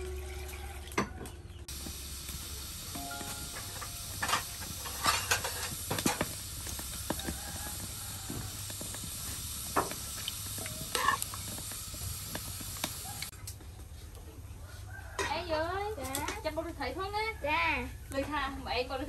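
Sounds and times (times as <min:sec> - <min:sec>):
pot of water hissing: 0:01.7 - 0:13.3.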